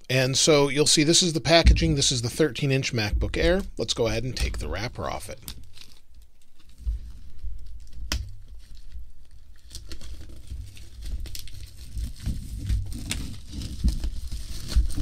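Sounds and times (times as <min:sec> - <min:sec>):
dull handling bumps: 0:01.5 - 0:05.0
plastic crackles: 0:04.4 - 0:15.0
shrink-wrap peeling and tearing: 0:05.2 - 0:15.0.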